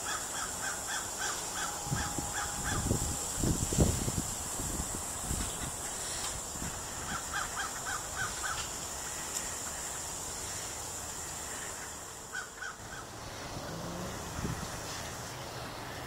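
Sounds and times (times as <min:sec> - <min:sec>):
bird calling: 0:00.0 - 0:03.4, 0:05.5 - 0:14.8
steady background hiss: 0:00.0 - 0:16.0.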